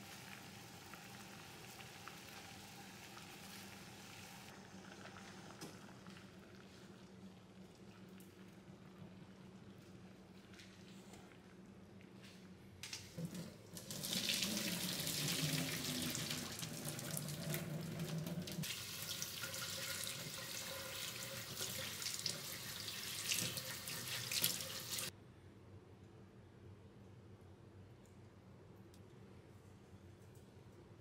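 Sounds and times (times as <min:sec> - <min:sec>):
water rushing into metal sink: 0:13.2 - 0:25.1.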